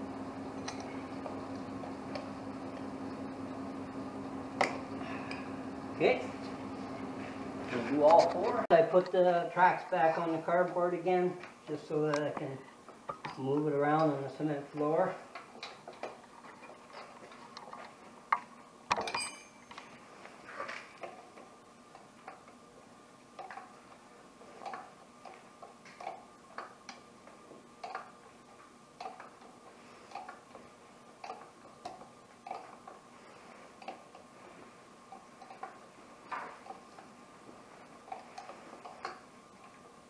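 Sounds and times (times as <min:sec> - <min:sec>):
sharp metallic clank: 0:18.9 - 0:19.7.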